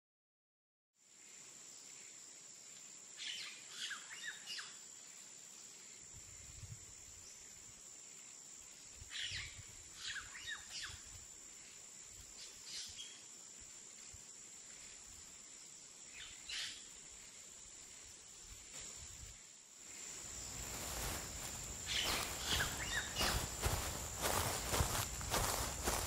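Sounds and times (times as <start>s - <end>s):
high-pitched insect drone: 18.9s - 26.0s
birds chirping: 20.6s - 26.0s.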